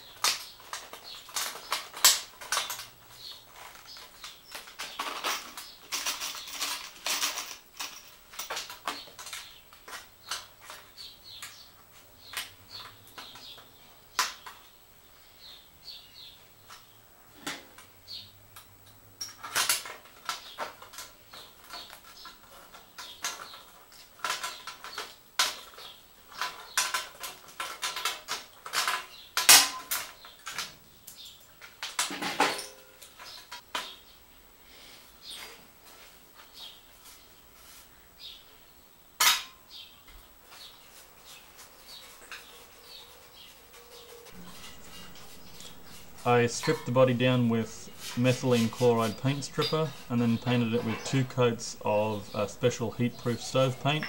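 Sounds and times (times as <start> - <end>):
metal cans clicking and scraping: 44.3 - 54.0.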